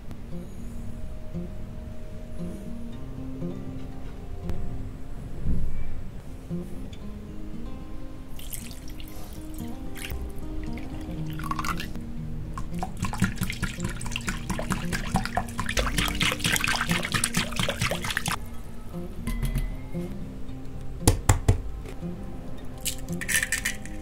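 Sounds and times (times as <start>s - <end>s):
soft guitar music: 0.0s - 24.0s
milk pouring into glass bowl: 8.4s - 9.2s, 10.7s - 11.9s, 12.6s - 18.4s
whisk beating against glass: 12.6s - 18.4s.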